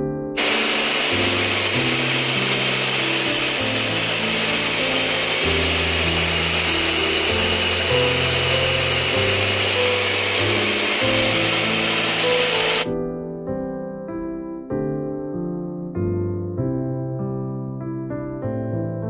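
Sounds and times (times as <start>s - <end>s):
background music: 0.0s - 19.0s
table saw running: 0.4s - 12.9s.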